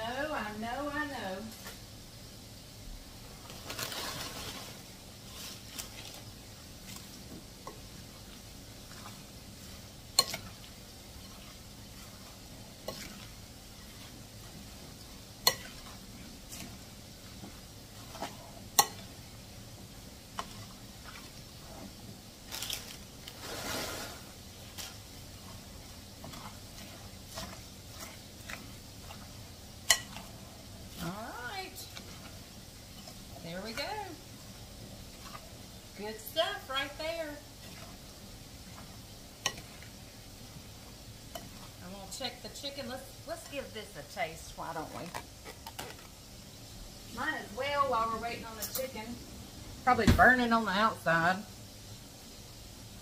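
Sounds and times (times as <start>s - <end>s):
fork stirring salad squishing: 3.6s - 19.3s, 20.3s - 31.2s, 31.8s - 36.0s, 36.8s - 41.8s.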